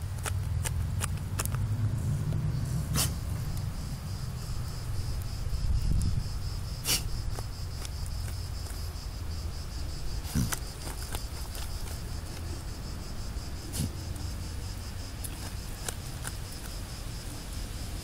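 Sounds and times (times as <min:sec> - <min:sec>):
dog digging in dry dirt: 0:00.0 - 0:04.5, 0:06.0 - 0:17.6
insect drone: 0:00.0 - 0:18.0
dog sniffing and snorting: 0:01.9 - 0:03.5, 0:06.8 - 0:07.9, 0:10.1 - 0:12.4, 0:13.6 - 0:14.0.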